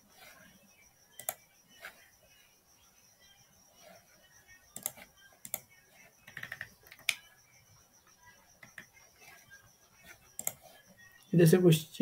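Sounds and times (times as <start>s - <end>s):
computer keyboard and mouse clicks: 1.2s - 1.4s, 4.8s - 7.2s, 8.6s - 8.9s, 10.4s - 10.7s.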